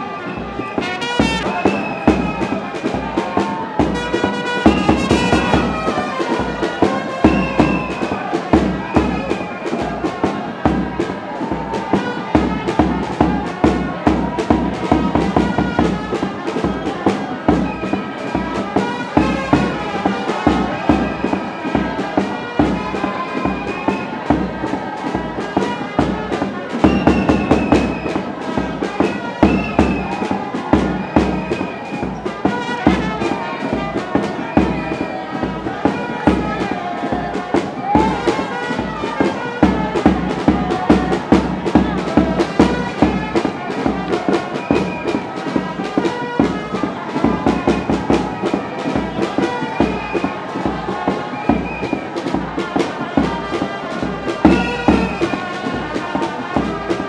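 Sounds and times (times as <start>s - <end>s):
quick drum beat: 0.5s - 57.0s.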